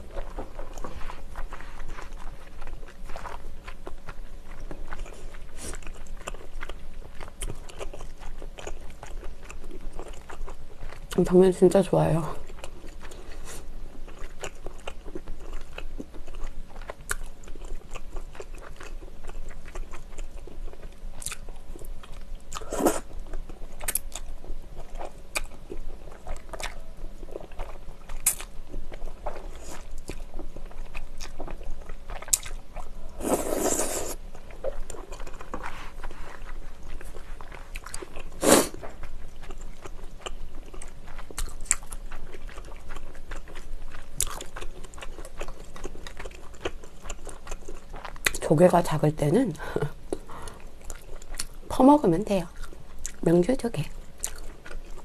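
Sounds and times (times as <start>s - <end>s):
noodle slurp: 33.2s - 34.2s, 38.4s - 38.8s.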